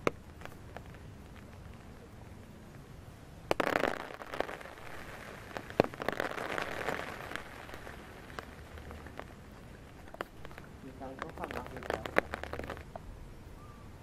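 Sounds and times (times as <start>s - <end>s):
leaves and twigs rustling: 4.0s - 13.0s.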